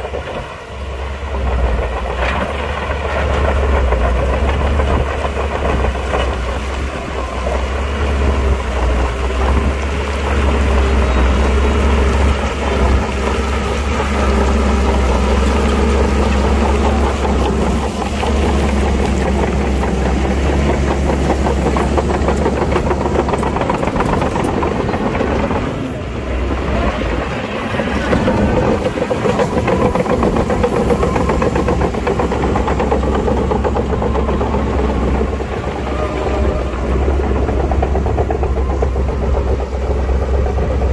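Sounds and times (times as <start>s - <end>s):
heavy machine diesel engine humming: 0.0s - 40.9s
fast clatter: 12.0s - 26.0s, 26.8s - 40.9s.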